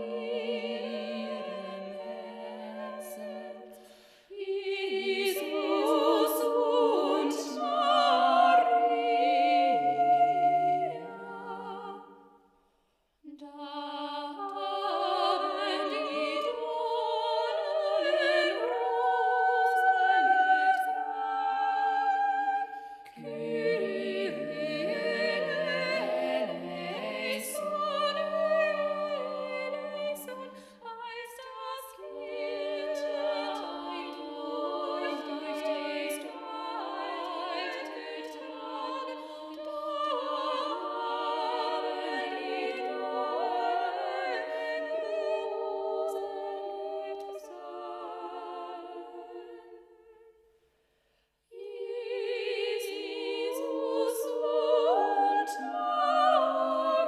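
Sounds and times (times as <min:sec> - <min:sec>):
a cappella choir singing a carol: 0:00.0 - 0:12.5, 0:13.2 - 0:57.0.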